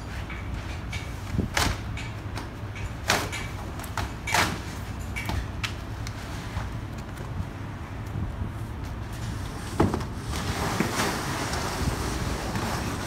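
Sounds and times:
steady low rumble: 0:05.4 - 0:10.7
cardboard scraping and rustling: 0:09.3 - 0:13.0.

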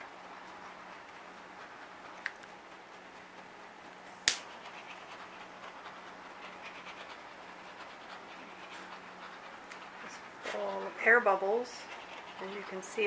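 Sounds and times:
torch igniter click: 0:04.3 - 0:04.5.

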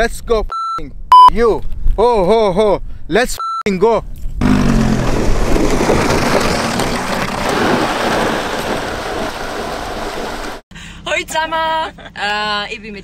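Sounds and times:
rushing wind and road noise: 0:04.4 - 0:10.6.

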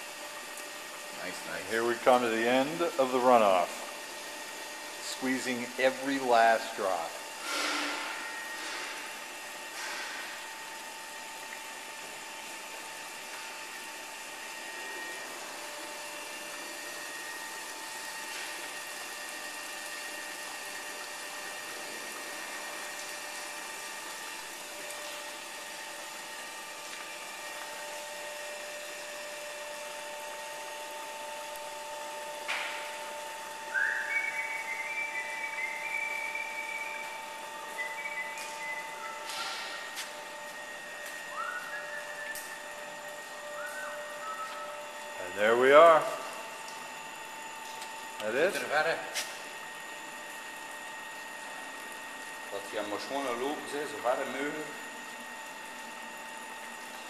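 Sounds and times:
machinery hum and hiss: 0:00.0 - 0:57.0
short high whistle: 0:33.7 - 0:37.2, 0:37.8 - 0:39.9, 0:41.3 - 0:42.6, 0:43.6 - 0:44.8.

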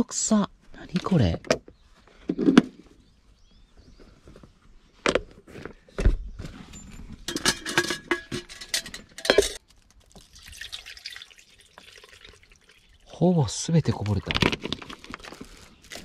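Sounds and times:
plastic bottle crackling: 0:13.9 - 0:16.0.

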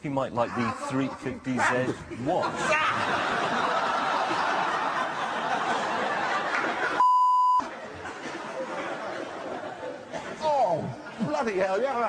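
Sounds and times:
people laughing: 0:00.2 - 0:12.0
censor bleep: 0:07.0 - 0:07.6.

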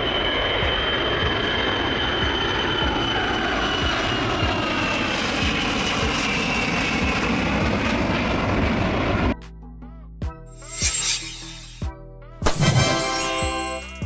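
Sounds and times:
jet flying low past: 0:00.0 - 0:09.4.

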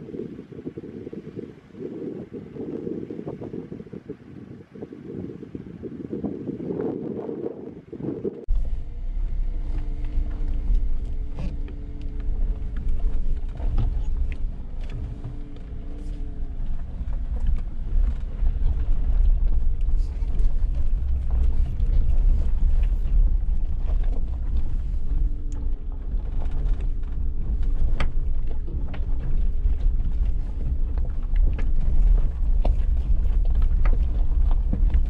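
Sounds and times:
engine and tyre rumble: 0:00.0 - 0:35.0
body and suspension creaks: 0:08.5 - 0:35.0.

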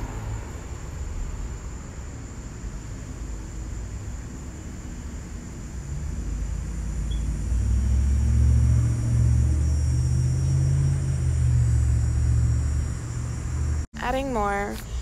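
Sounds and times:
low mechanical rumble with hum: 0:02.6 - 0:15.0.

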